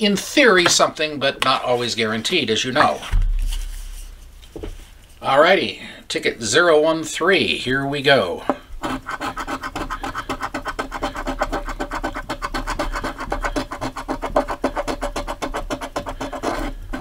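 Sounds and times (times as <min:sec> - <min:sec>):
coin scraping scratch-off ticket: 0:08.8 - 0:17.0.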